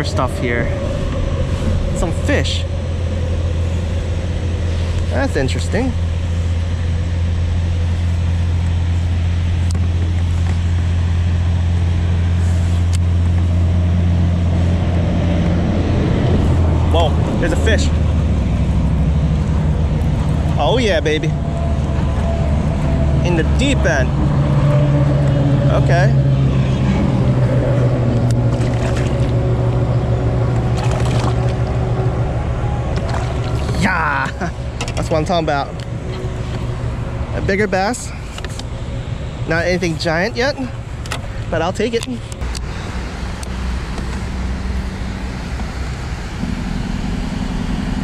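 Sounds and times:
steady low hum: 0.0s - 48.0s
fish splashing at the surface: 28.4s - 29.4s, 30.6s - 31.8s, 32.9s - 33.8s.

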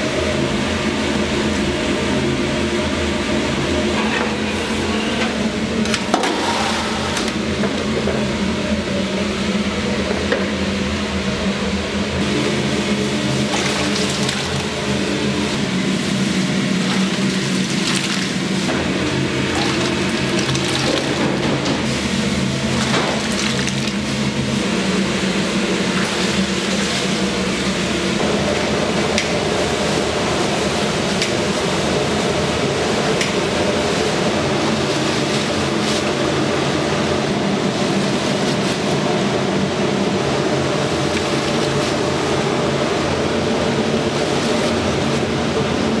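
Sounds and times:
machinery humming: 0.0s - 46.0s.

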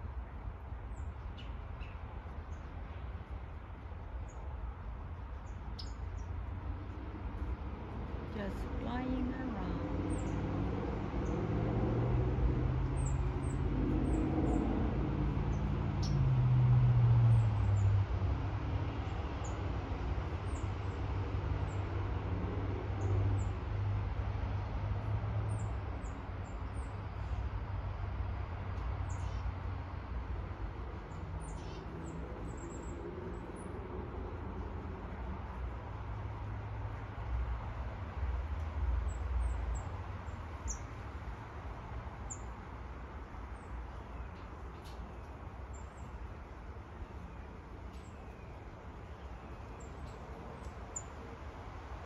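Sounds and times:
small birds chirping: 5.4s - 6.4s, 29.0s - 29.6s, 31.1s - 33.7s, 39.0s - 41.1s, 43.5s - 51.3s.

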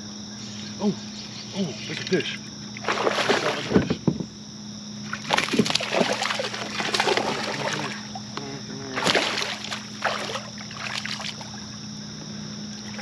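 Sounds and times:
fish splashing at the surface: 2.8s - 3.8s, 5.0s - 8.3s, 9.0s - 11.8s.

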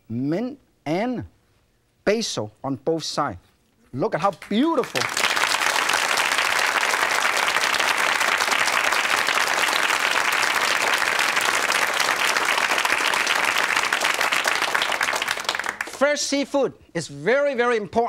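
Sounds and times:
audience applauding: 4.5s - 16.0s.

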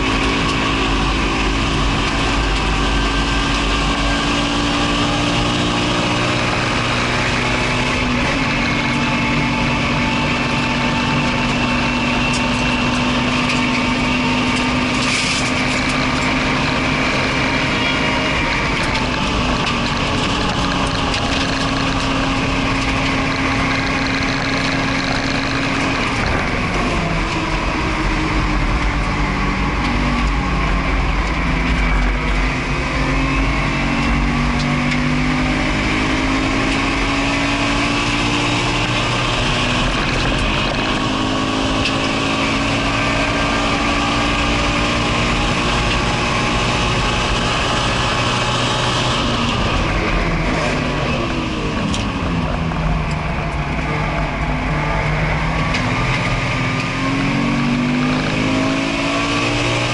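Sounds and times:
car engine revving: 0.0s - 59.9s
wind and road noise: 0.0s - 59.9s.

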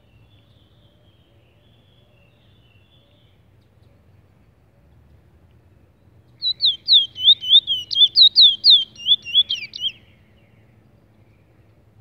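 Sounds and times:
bird singing high notes: 6.4s - 10.0s.

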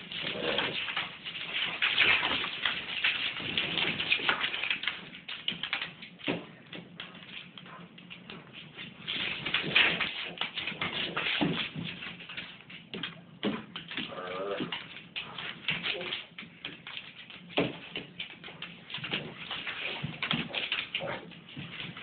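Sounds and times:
scuffling and clicks: 0.0s - 22.0s
dog growling: 0.1s - 1.0s, 14.0s - 16.1s, 20.5s - 21.4s.

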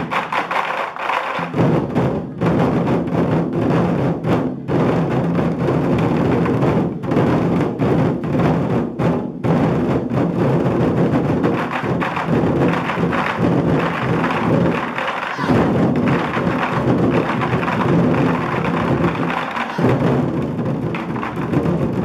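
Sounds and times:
large barrel drums beaten fast: 0.0s - 22.0s.

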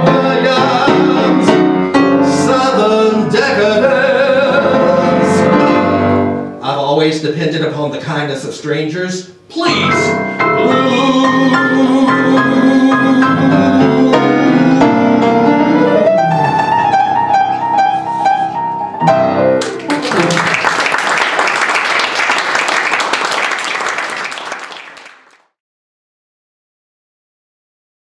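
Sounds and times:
piano playing: 0.0s - 6.7s, 9.6s - 23.9s
audience applause: 19.6s - 25.5s.

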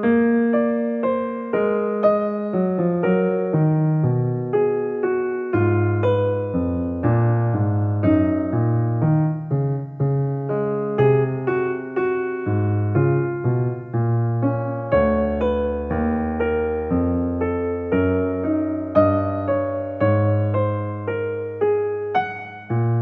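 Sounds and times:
keyboard melody: 0.0s - 23.0s.

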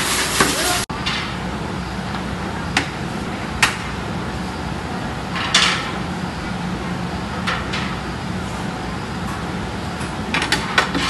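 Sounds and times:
factory workshop hum: 0.0s - 11.0s.

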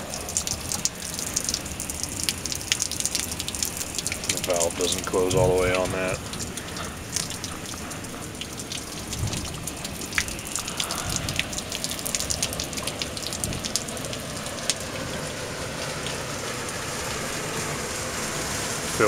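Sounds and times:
water spattering and dripping: 0.0s - 19.0s.

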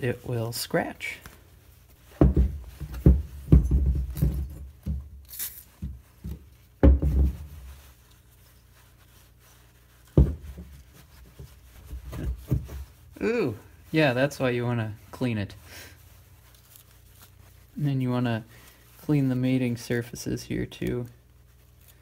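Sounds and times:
cloth rubbing: 0.0s - 22.0s
dull thumps and knocks: 2.1s - 5.2s, 5.8s - 7.8s, 10.1s - 13.0s.

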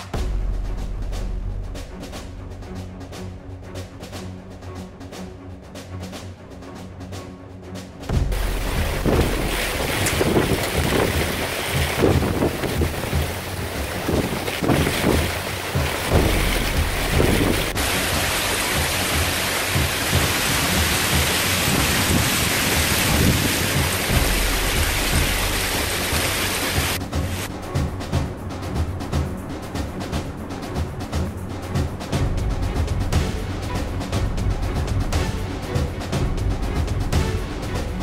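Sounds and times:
rain and hail pelting pavement: 8.3s - 27.5s
wind buffeting microphone: 8.4s - 18.2s, 19.8s - 25.6s.

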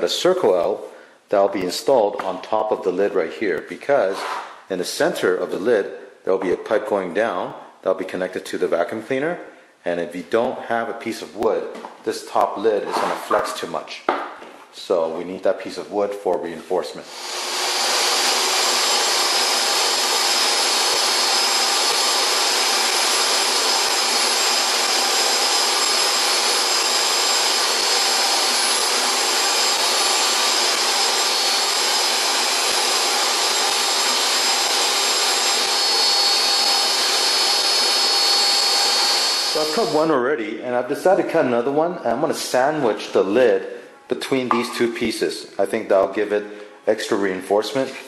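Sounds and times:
table saw whining: 17.0s - 40.1s.

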